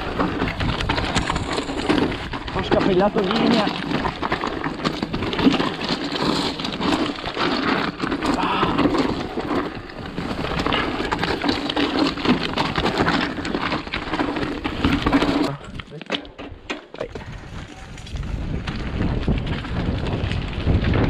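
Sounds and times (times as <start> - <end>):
bike chain and frame rattling: 0.0 - 21.0
tyres crunching over dirt: 0.0 - 21.0
wind on microphone: 17.0 - 21.0.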